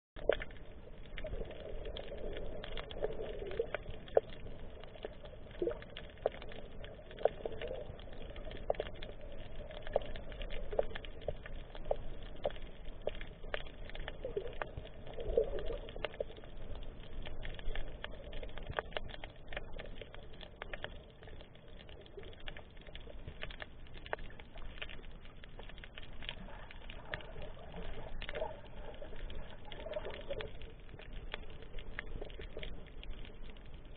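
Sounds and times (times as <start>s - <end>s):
underwater crackle of clicks: 0.2s - 33.9s
muffled underwater burbling: 13.8s - 16.8s, 26.4s - 33.0s.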